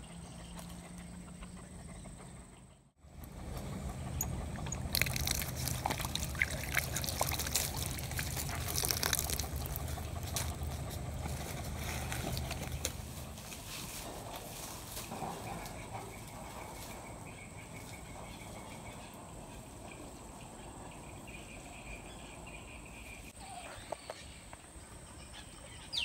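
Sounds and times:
water pouring from a tap: 0:04.9 - 0:09.8.

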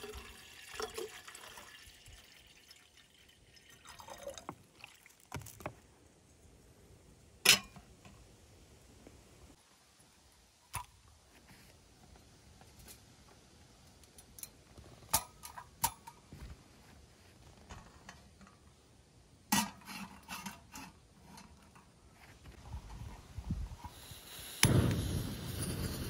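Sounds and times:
gas flame rushing: 0:23.7 - 0:26.0.

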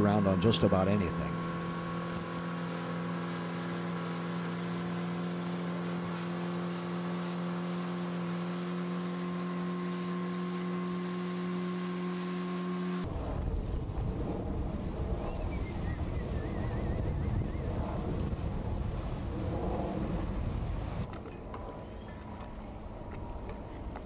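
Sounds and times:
outboard motor running: 0:00.0 - 0:15.4, 0:16.4 - 0:24.0
low wind rumble: 0:13.0 - 0:24.0.

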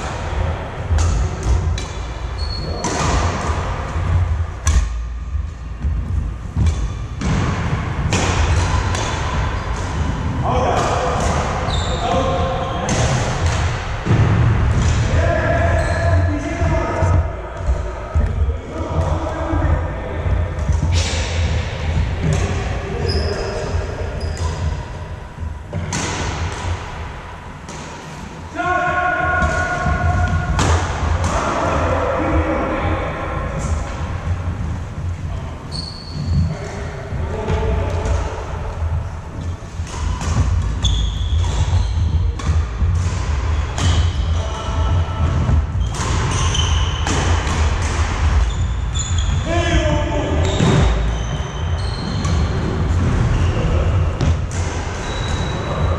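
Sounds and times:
steady low hum: 0:00.0 - 0:11.7, 0:12.6 - 0:28.5, 0:29.3 - 0:46.4
racket hitting shuttlecock: 0:00.9 - 0:03.7, 0:04.6 - 0:05.1, 0:06.6 - 0:11.6, 0:25.7 - 0:28.4, 0:29.4 - 0:31.4, 0:39.4 - 0:44.4, 0:45.2 - 0:48.5
sneakers squeaking on wooden floor: 0:01.6 - 0:03.3, 0:11.6 - 0:13.0, 0:15.6 - 0:16.3, 0:23.0 - 0:25.5, 0:34.2 - 0:37.5, 0:39.3 - 0:47.4, 0:48.3 - 0:55.9
racket striking shuttlecock: 0:04.6 - 0:05.0, 0:39.7 - 0:44.2.

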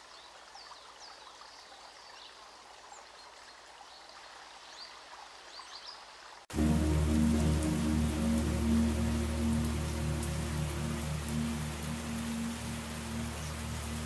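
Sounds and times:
faint running water: 0:00.0 - 0:14.0
loud music: 0:06.5 - 0:14.0.

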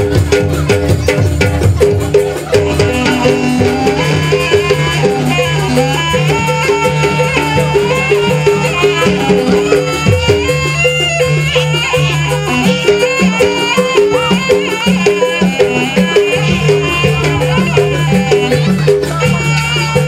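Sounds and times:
reedy wind instrument melody: 0:00.0 - 0:20.0.

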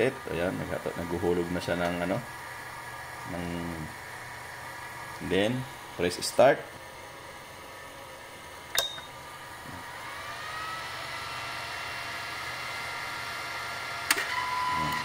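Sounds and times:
machine click: 0:08.7 - 0:09.1
machine whine rising in pitch: 0:09.5 - 0:15.0.

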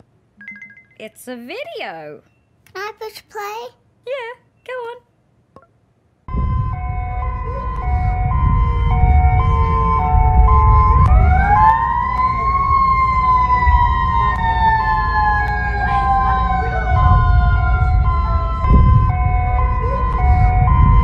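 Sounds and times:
low rumble: 0:06.3 - 0:21.0
siren wail: 0:06.3 - 0:21.0.

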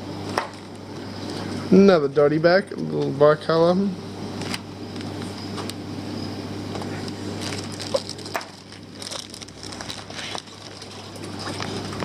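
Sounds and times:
plastic bags crinkling: 0:07.0 - 0:12.0.

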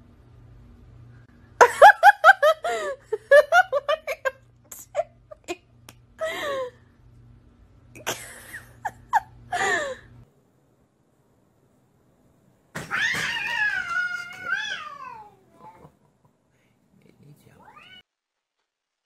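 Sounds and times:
person giggling: 0:01.6 - 0:06.8, 0:08.0 - 0:10.1.

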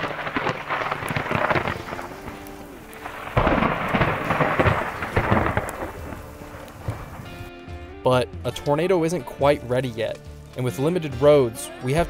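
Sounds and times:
loud thunder clap: 0:00.0 - 0:07.3
thunder crackling and rumbling: 0:00.0 - 0:07.6.

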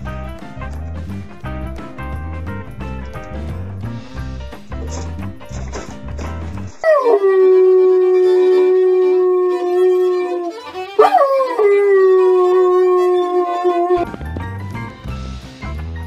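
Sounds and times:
dog howling: 0:06.8 - 0:14.1
violin playing: 0:07.3 - 0:14.0.

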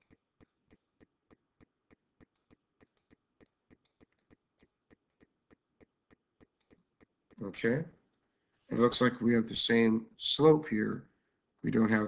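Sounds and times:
sharp clicks: 0:00.0 - 0:07.4
faint regular ticking: 0:00.0 - 0:07.8.

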